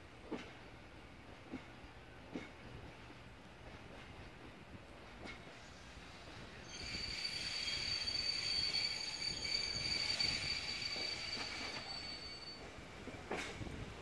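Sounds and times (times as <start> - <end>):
train wheels squealing: 5.2 - 13.7.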